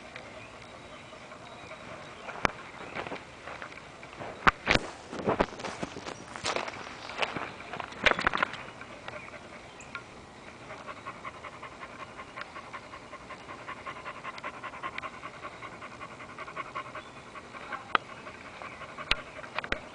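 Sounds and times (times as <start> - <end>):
dog panting hard: 10.6 - 19.9.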